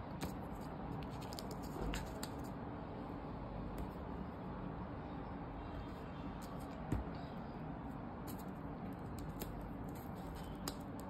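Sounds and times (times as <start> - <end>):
low background hum: 0.0 - 11.0
small clicks and paper rustles: 0.2 - 2.6, 8.2 - 11.0.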